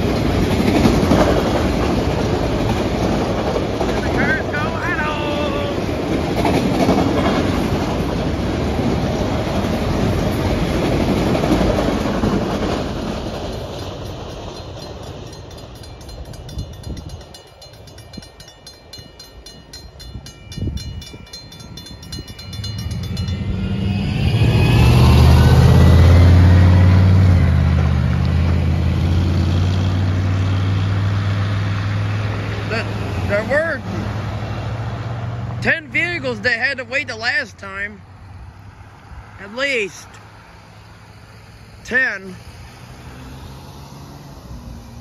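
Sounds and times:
train wheels on rails: 0.0s - 36.3s
crossing bell ringing rapidly: 13.2s - 26.2s.

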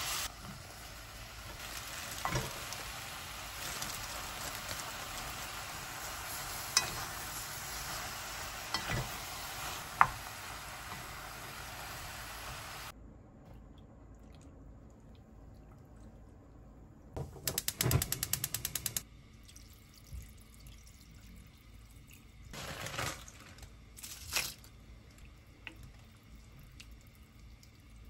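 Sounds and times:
rapid sharp clicks: 17.5s - 19.0s.

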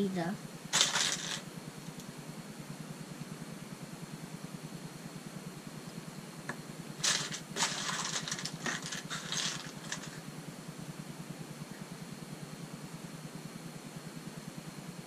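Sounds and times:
steady low hum: 0.0s - 15.0s
plastic pieces clattering in a box: 0.8s - 1.4s, 7.0s - 10.2s.

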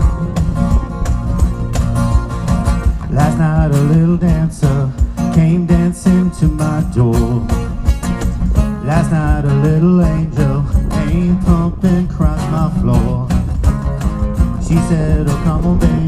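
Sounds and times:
live band music: 0.0s - 9.8s
person singing with vibrato: 3.0s - 7.8s, 8.8s - 13.4s.

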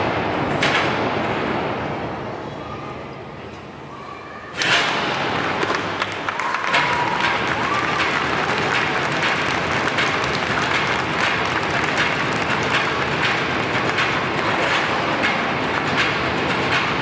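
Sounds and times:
audience applauding: 5.1s - 14.8s.

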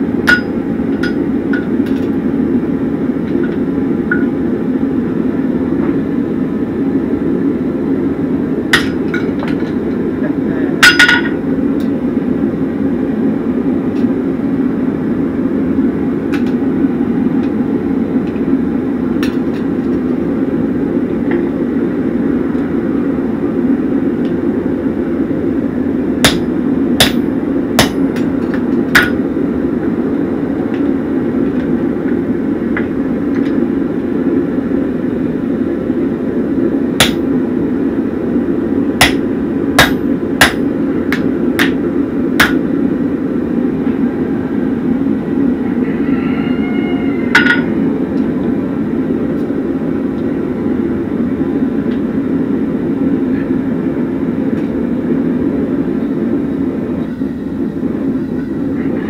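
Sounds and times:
low rumbling noise: 0.0s - 59.0s
hammer striking chisel on hot steel: 0.2s - 2.1s, 8.7s - 9.7s, 10.8s - 11.9s, 26.2s - 29.2s, 37.0s - 37.3s, 39.0s - 41.8s, 42.4s - 42.7s.

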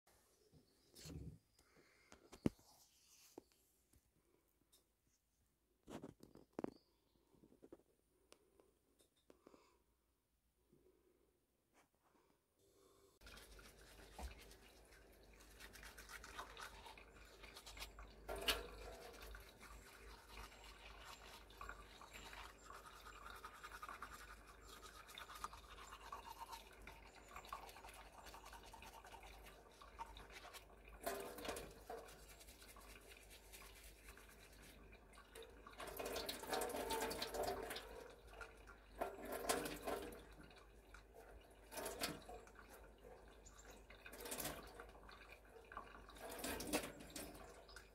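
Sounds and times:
toothbrush scrubbing teeth: 13.2s - 18.0s, 19.1s - 26.6s, 32.0s - 34.8s.

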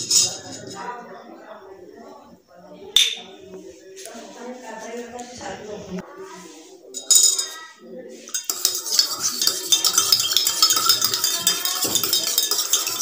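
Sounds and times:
spoon clinking in metal tumbler: 8.3s - 13.0s.

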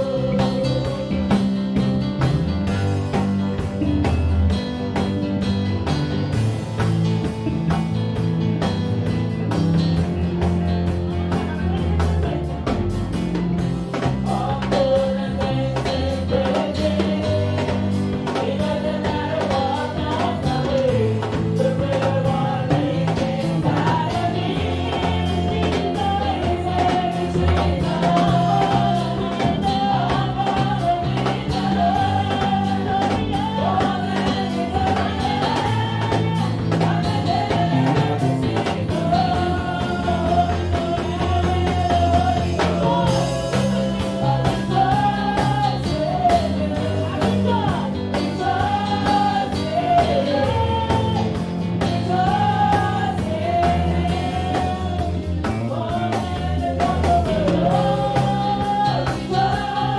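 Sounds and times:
woman singing into microphone: 0.0s - 1.5s, 14.2s - 59.9s
keyboard and drums: 0.0s - 59.9s.

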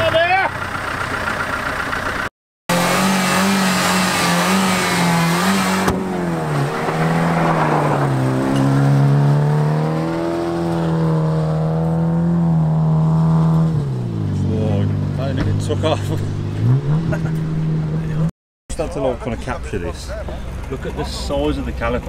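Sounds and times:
car engine revving: 2.7s - 18.3s.

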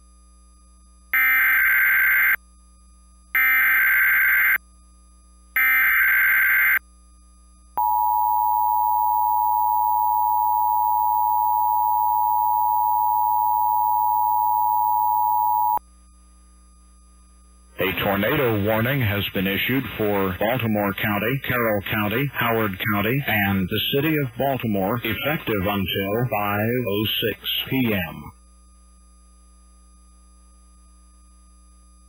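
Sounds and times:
two-tone attention signal: 7.8s - 15.8s.

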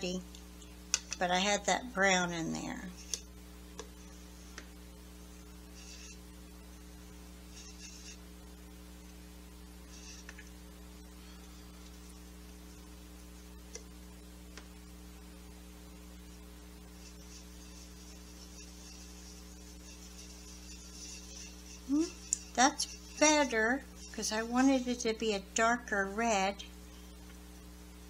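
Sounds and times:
low electrical mains hum: 0.0s - 28.0s
small ticks: 3.0s - 4.8s, 5.8s - 6.2s, 7.5s - 8.2s, 9.9s - 10.6s, 16.9s - 24.5s
paintbrush scrubbing in palette: 17.0s - 24.9s.

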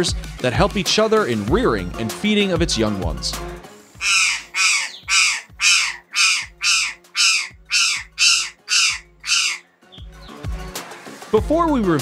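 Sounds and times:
jay giving short harsh calls: 4.0s - 9.6s.

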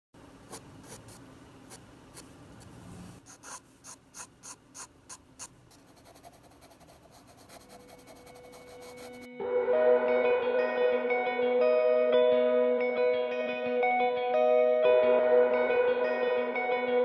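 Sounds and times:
pencil scratching on paper: 0.5s - 2.3s, 3.2s - 9.3s.

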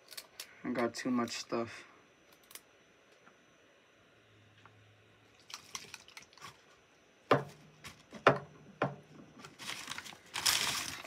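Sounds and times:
items knocking on tabletop: 7.3s - 9.1s
plastic bag rustling: 9.4s - 11.0s.

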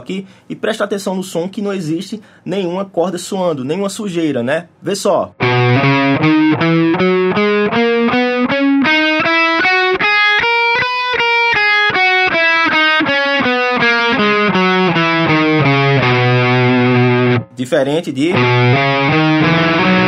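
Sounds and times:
distorted electric guitar scale: 5.4s - 17.5s, 18.3s - 20.0s.

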